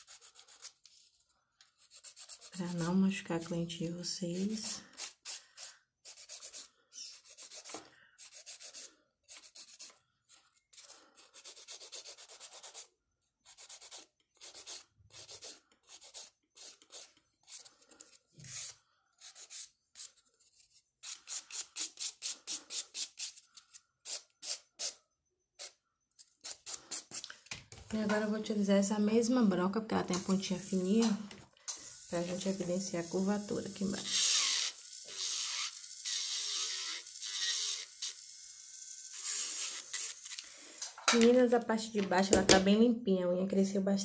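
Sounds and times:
nail file rasping: 0.0 - 0.8, 1.8 - 3.0, 4.3 - 12.9, 13.5 - 25.0, 34.1 - 38.2.

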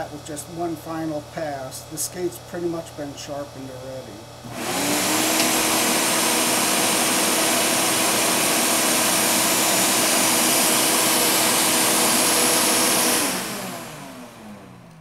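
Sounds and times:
grinding wheel motor hum: 4.2 - 15.0.

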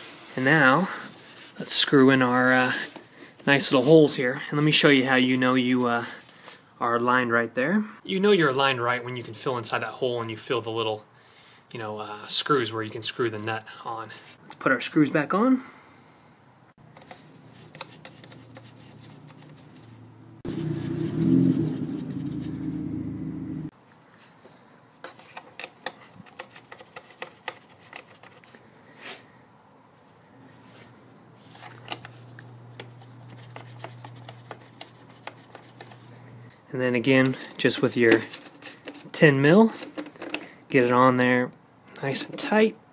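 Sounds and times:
loud low hum: 20.2 - 23.7.

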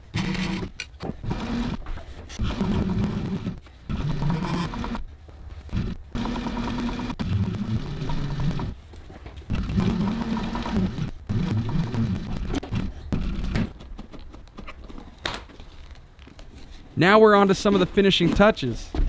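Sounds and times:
industrial sewing machine stitching: 0.1 - 1.8, 2.4 - 5.0, 5.7 - 8.7, 9.5 - 13.6.

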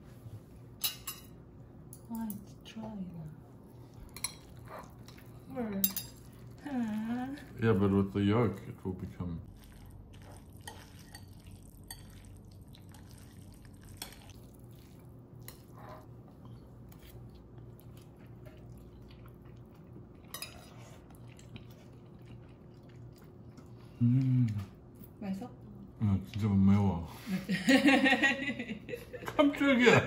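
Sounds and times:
low steady hum: 0.0 - 30.0
cutlery clinking on dishes: 5.8 - 6.2.

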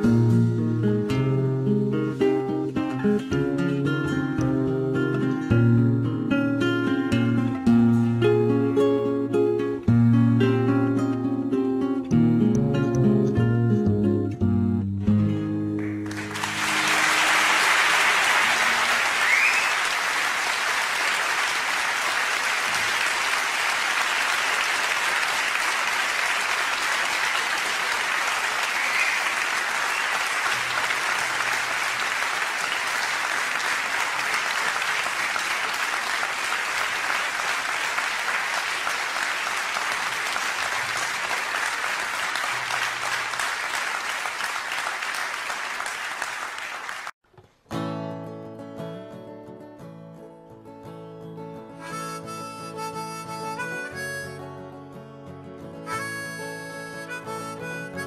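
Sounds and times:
guitar notes: 0.0 - 17.1, 47.6 - 58.0
audience applauding: 15.8 - 47.2.

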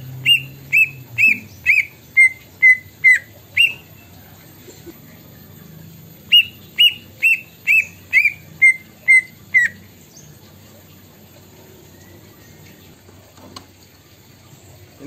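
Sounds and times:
bird whistling notes: 0.2 - 3.9, 6.3 - 9.9.

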